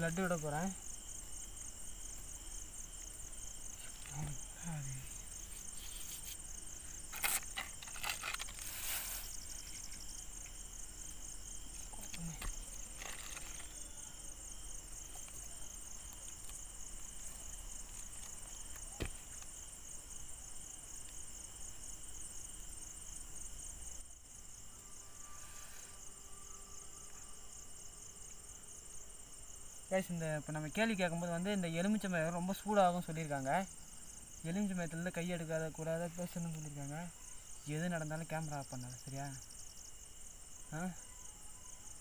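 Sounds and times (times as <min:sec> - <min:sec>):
crickets trilling: 0:00.0 - 0:42.0
rustles and clicks: 0:07.1 - 0:10.1, 0:11.7 - 0:13.9.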